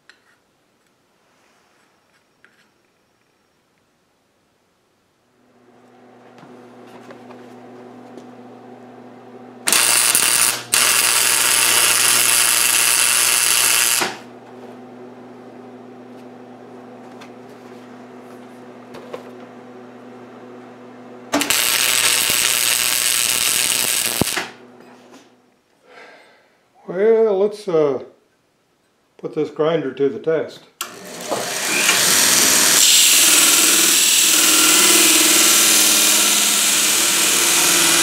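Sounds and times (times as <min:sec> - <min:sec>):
steady hum: 0:04.6 - 0:25.7
welding arc crackle: 0:09.6 - 0:14.3, 0:21.4 - 0:24.6.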